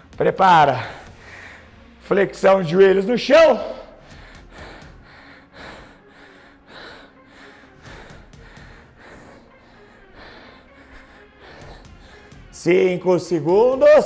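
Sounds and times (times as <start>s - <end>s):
man breathing hard: 0.0s - 2.1s, 3.8s - 12.6s.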